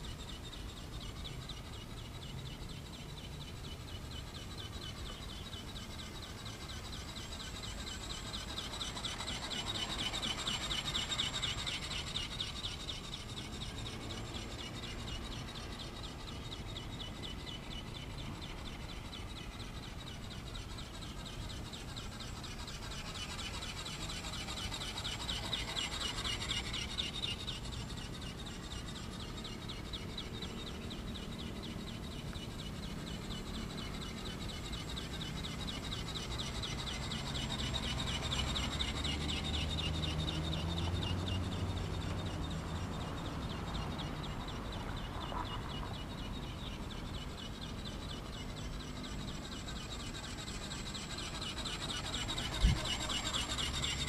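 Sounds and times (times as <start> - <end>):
ornithopter motor whirring buzz: 46.0 - 54.0
wind rumble on microphone: 52.4 - 53.2.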